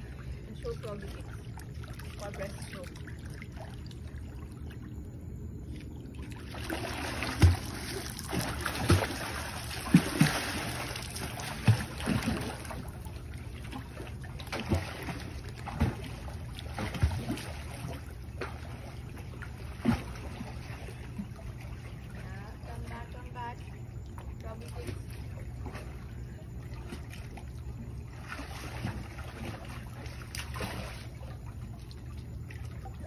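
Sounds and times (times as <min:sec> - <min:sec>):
steady low hum: 0:00.0 - 0:33.0
water splashing from kicks: 0:05.8 - 0:22.2, 0:24.1 - 0:33.0.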